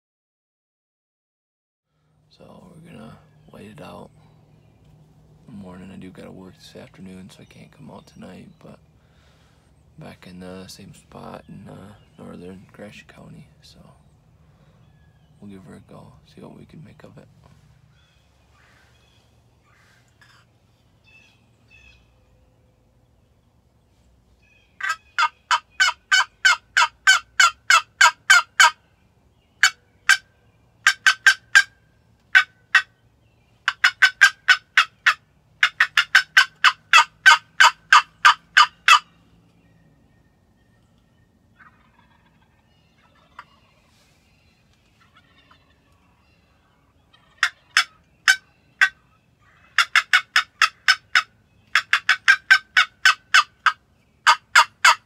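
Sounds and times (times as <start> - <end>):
raspy turkey box call: 24.6 - 28.8, 29.6 - 33.0, 33.6 - 39.3, 41.6 - 44.2, 44.9 - 55.0.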